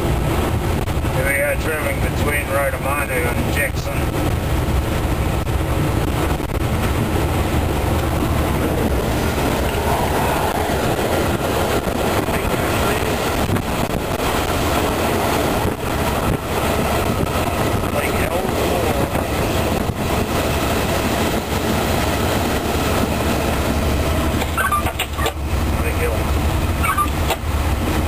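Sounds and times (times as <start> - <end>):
diesel engine running under load: 0.0 - 28.0
wheels rolling on rails: 2.2 - 28.0.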